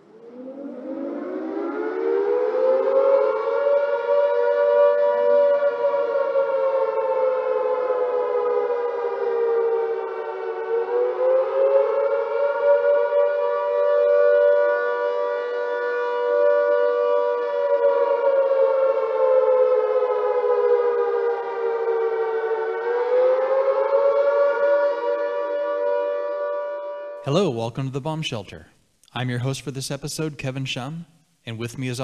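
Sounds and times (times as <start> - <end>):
air-raid siren wailing: 0.0 - 27.5.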